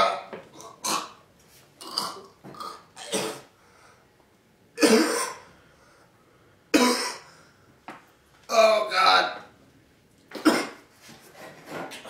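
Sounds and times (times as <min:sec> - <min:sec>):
man coughing and gagging: 0:03.0 - 0:03.5, 0:04.8 - 0:05.4, 0:06.8 - 0:07.2, 0:10.3 - 0:10.8.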